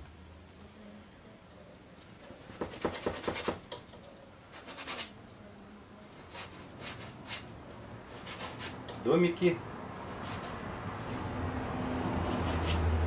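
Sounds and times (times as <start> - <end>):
paintbrush scratching on canvas: 4.5 - 5.2, 8.1 - 8.8, 10.0 - 11.2, 12.2 - 12.9.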